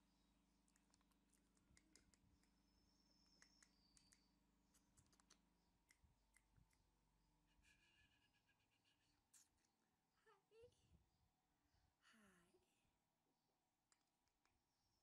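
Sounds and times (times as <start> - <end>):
faint clicks: 3.3 - 6.9.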